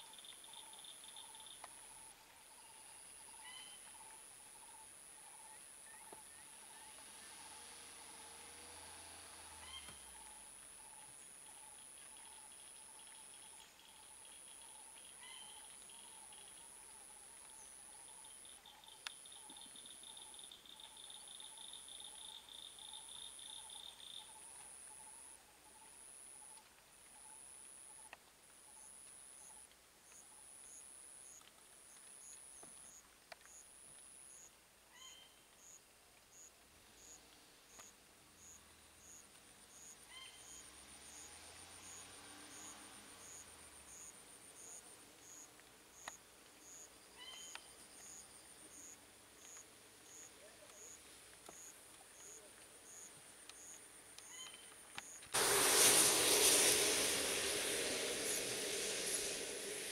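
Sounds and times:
insects trilling: 35.6s - 59.9s.

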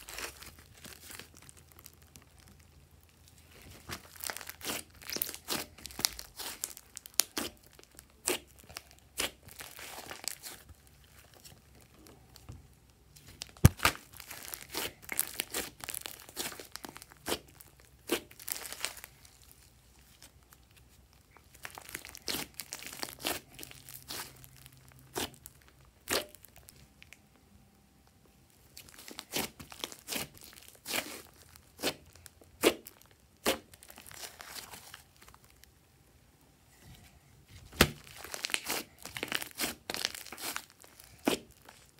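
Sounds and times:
slime crackling pops: 13.4s - 17.4s.

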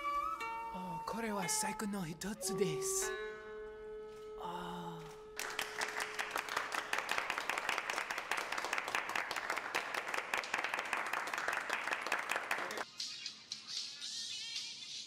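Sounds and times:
held musical note ringing: 0.0s - 5.4s
people clapping: 5.4s - 12.9s.

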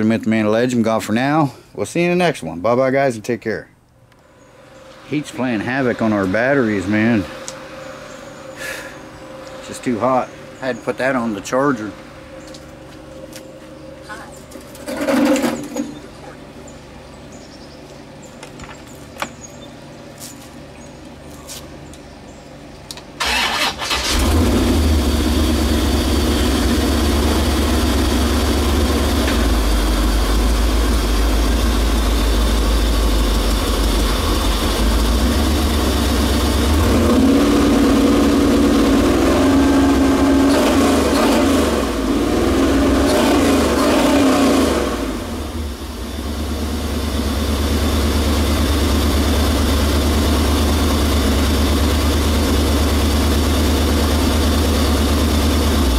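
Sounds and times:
engine cranking and idling: 23.2s - 55.9s.

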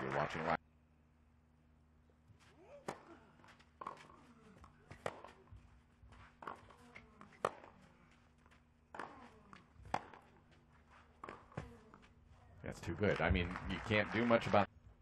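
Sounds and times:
tennis ball struck with rackets: 2.7s - 5.6s, 6.3s - 7.9s, 8.9s - 10.4s, 11.1s - 12.0s.

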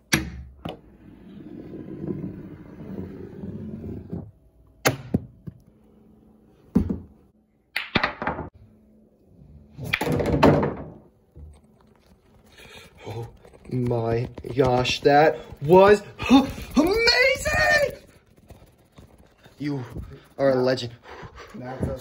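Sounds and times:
billiard balls rolling on wood: 0.7s - 4.4s, 9.8s - 20.9s
billiard balls knocking and clacking: 7.8s - 8.5s, 9.9s - 11.5s.

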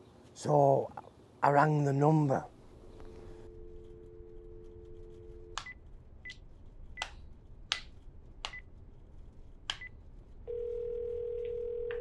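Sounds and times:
telephone dial tone: 10.5s - 12.0s.

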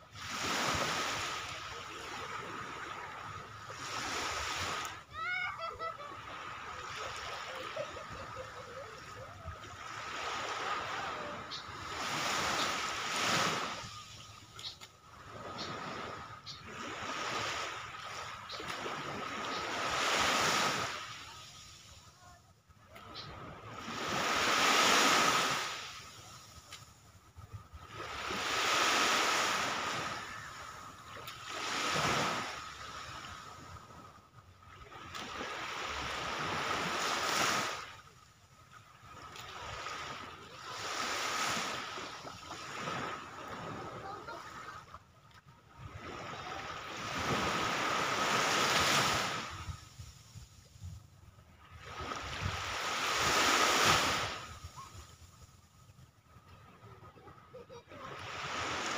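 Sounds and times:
small waves washing ashore: 0.0s - 58.9s
waves washing on pebbly shore: 23.7s - 26.6s, 46.0s - 50.3s, 51.9s - 54.6s.

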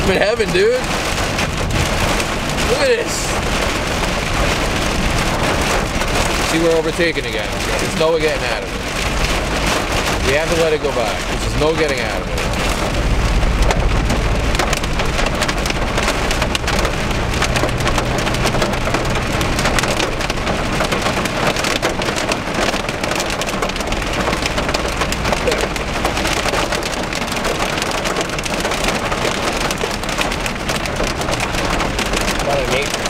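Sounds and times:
hail clattering on car roof: 0.0s - 33.0s
low car hum: 0.0s - 33.0s
rain hiss: 0.0s - 33.0s.

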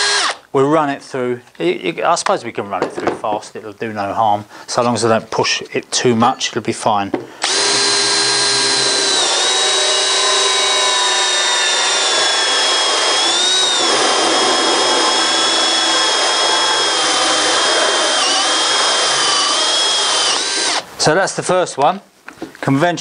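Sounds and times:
drill motor whine: 0.0s - 0.4s, 7.4s - 20.8s
hole saw cutting through board: 0.0s - 0.4s, 7.4s - 20.9s.

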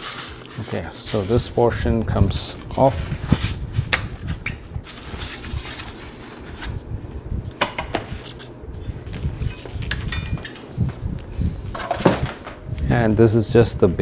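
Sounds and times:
foam packing rubbing: 0.0s - 1.8s, 2.4s - 9.9s.

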